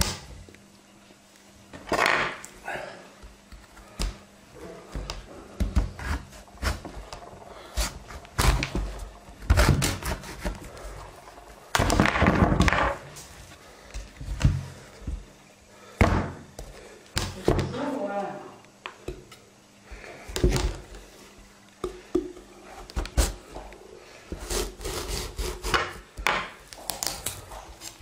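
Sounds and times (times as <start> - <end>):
scraping pumpkin pulp: 4.6 - 11.6, 22.6 - 26.2.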